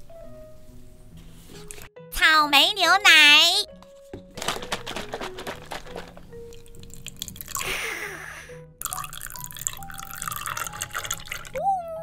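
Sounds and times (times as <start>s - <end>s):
background music: 0.0s - 12.0s
paper carton crinkling and tapping: 3.8s - 6.4s
milk pouring: 4.4s - 7.7s, 8.8s - 11.6s.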